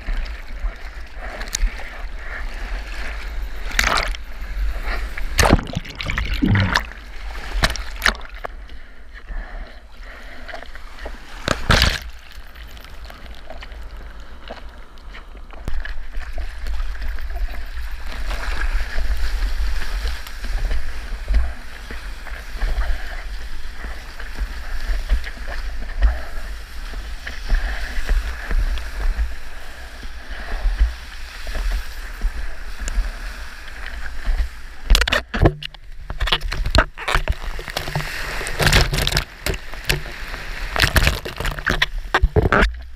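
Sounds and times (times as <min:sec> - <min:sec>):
sea water sloshing and splashing: 0:00.0 - 0:42.9
sharp water splash: 0:05.4 - 0:08.4, 0:11.4 - 0:13.0.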